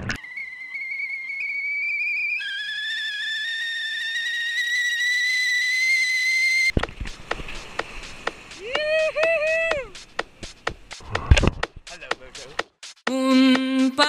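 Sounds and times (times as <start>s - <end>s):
high whistling tone: 0.2s - 6.7s.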